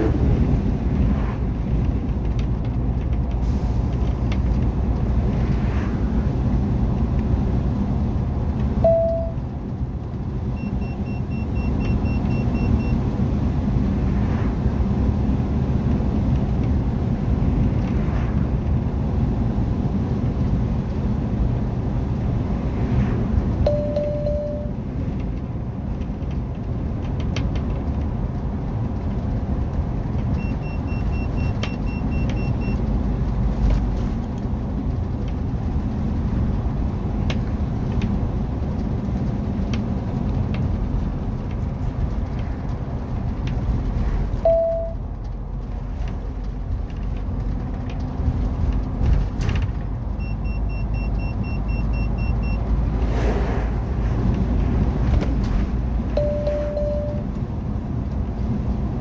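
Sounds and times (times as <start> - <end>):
engine and tyre rumble: 0.0 - 59.0
single short beep: 8.8 - 9.4, 23.7 - 24.8, 44.4 - 45.0, 56.2 - 57.2
quick faint electronic beeps: 56.2 - 57.2.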